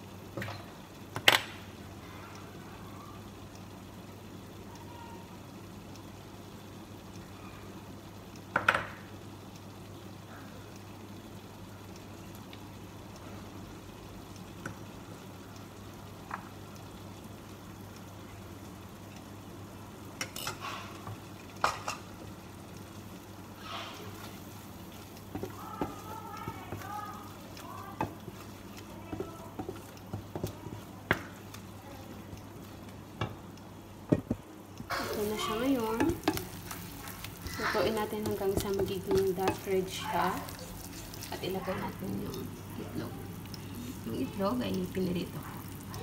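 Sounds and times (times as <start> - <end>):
sauce sizzling and bubbling: 0.0 - 46.0
knocks on pan: 8.5 - 9.0, 34.1 - 34.4
wooden spatula stirring pan: 23.0 - 33.5, 34.1 - 46.0.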